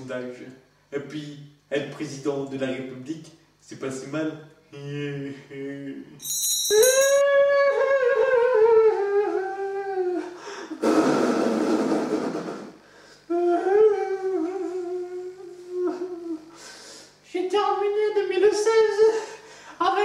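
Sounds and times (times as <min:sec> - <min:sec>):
high chime: 0:06.2 - 0:07.2
high voice wailing: 0:06.8 - 0:10.3, 0:13.3 - 0:16.5
noisy breath: 0:10.4 - 0:13.4, 0:16.5 - 0:17.2, 0:19.2 - 0:19.8.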